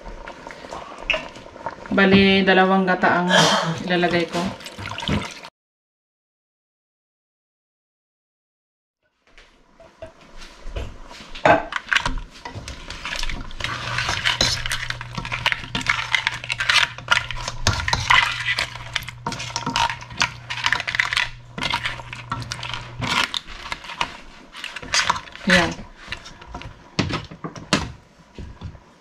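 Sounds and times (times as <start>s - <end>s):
low steady hum: 12.6s - 26.9s
spoon and shells clattering in pan: 12.9s - 26.7s.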